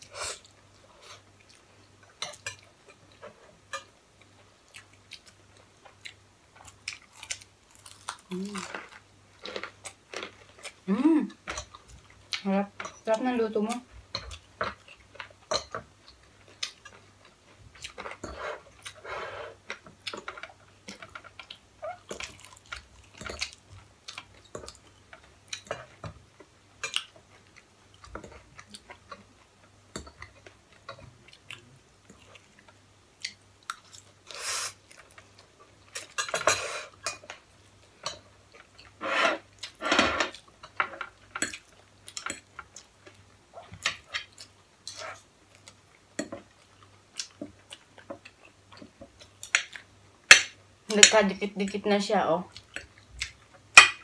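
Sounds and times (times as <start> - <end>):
people chewing: 0.0 - 12.4, 16.0 - 26.0.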